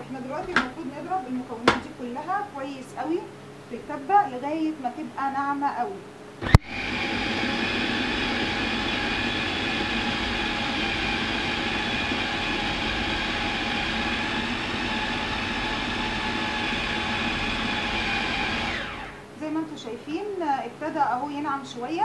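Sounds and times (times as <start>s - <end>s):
food processor whirring: 0.4s - 0.8s, 6.4s - 19.3s.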